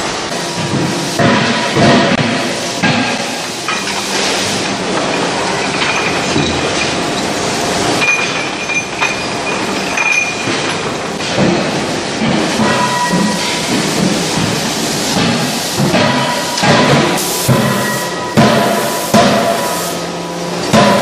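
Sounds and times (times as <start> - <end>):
conveyor chain rattling: 4.8 - 11.2.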